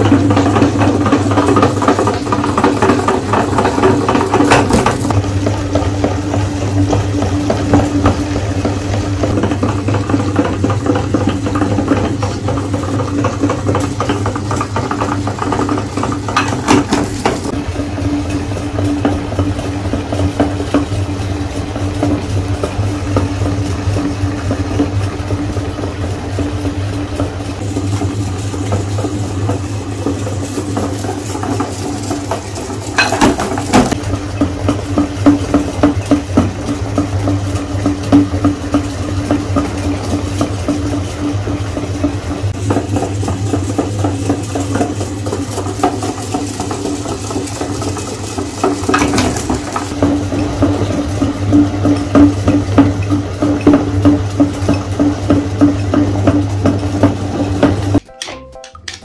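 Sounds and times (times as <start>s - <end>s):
meat grinder motor humming: 0.0s - 58.0s
candies clattering in metal hopper: 9.2s - 17.5s, 27.7s - 34.0s, 42.5s - 52.4s.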